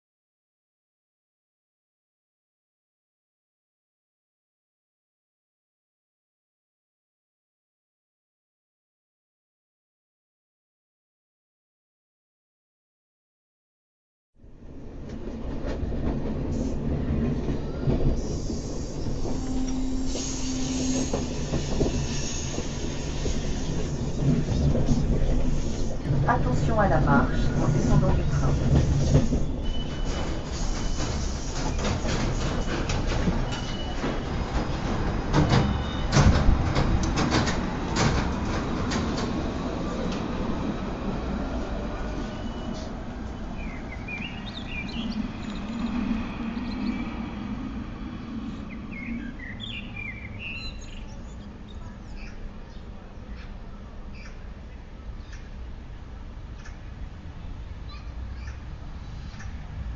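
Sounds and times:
sharp clicks and knocks: 0:35.3 - 0:39.3
low rumble: 0:44.0 - 0:49.6.

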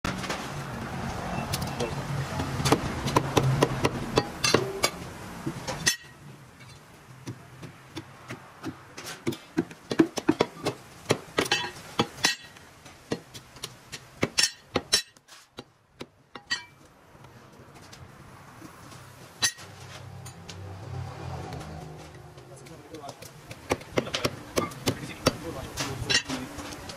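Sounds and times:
cleaver chopping meat on wood: 0:02.4 - 0:04.8, 0:07.2 - 0:12.2, 0:22.3 - 0:25.5.

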